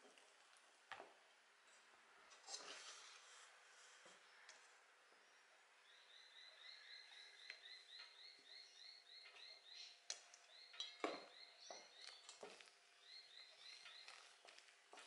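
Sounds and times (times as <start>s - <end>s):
faint steady chirping: 4.2s - 15.0s.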